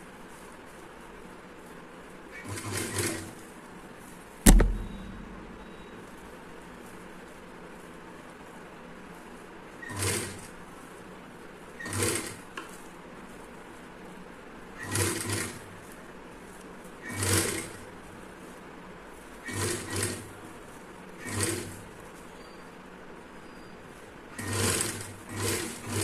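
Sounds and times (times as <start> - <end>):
sewing machine running: 19.5 - 20.2, 21.2 - 21.8, 24.4 - 26.0.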